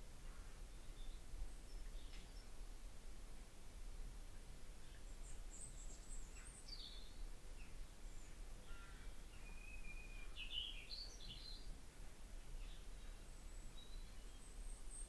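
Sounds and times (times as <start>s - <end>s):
birds chirping: 4.8s - 11.8s, 12.5s - 15.0s.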